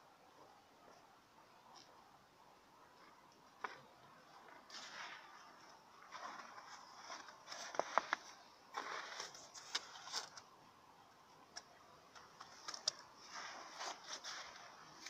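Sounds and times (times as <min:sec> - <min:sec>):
footsteps crunching on snow: 0:03.6 - 0:10.0, 0:13.2 - 0:15.0.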